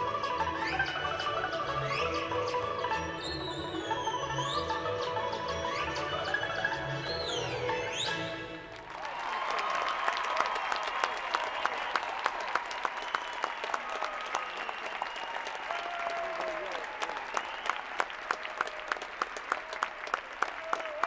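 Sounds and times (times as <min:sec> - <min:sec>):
crowd applauding and cheering: 0:08.6 - 0:21.0
close hand claps: 0:08.7 - 0:21.0.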